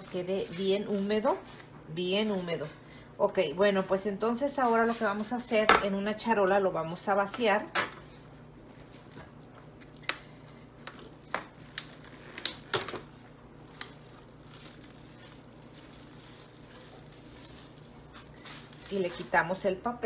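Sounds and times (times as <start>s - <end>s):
plastic wrap and paper crinkling: 0.0s - 2.8s, 8.0s - 20.0s.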